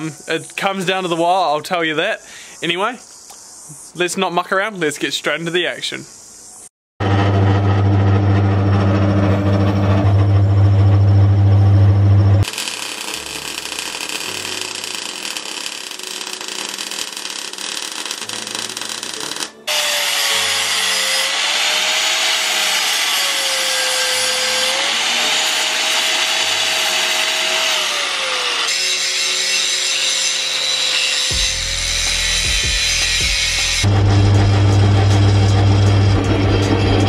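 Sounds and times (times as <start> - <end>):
welding arc crackling: 7.0 - 21.2
angle grinder cutting steel: 7.0 - 37.0.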